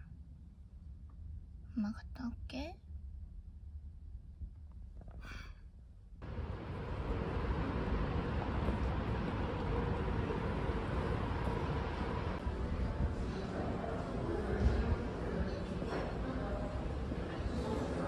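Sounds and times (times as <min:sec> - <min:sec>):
traffic hum: 0:06.2 - 0:18.0.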